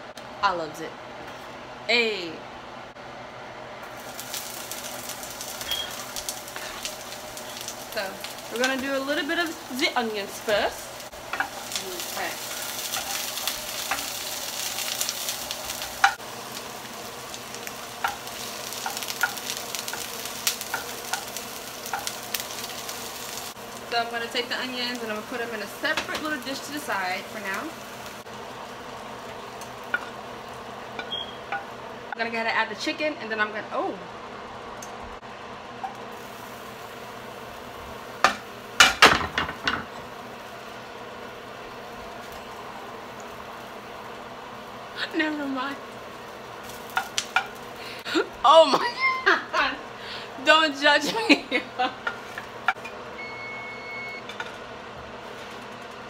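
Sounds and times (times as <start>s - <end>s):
onions sizzling in a frying pan: 3.8s - 56.0s
kitchen utensils clattering: 38.8s - 39.9s.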